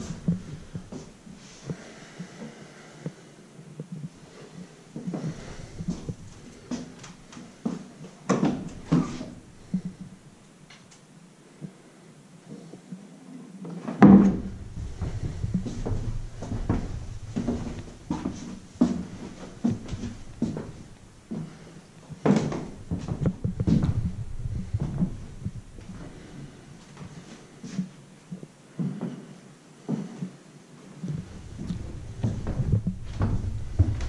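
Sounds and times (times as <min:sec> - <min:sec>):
footsteps: 0:00.0 - 0:02.6, 0:03.8 - 0:10.2, 0:14.0 - 0:29.2, 0:31.0 - 0:34.0
low rumble: 0:14.4 - 0:21.4, 0:22.7 - 0:26.7, 0:31.2 - 0:34.0.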